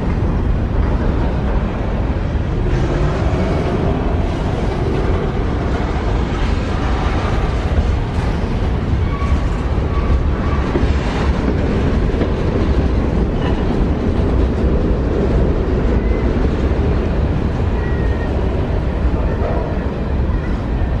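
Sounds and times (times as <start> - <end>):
freight train rumbling past: 0.0 - 21.0
steel wheels rattling on rails: 0.0 - 21.0.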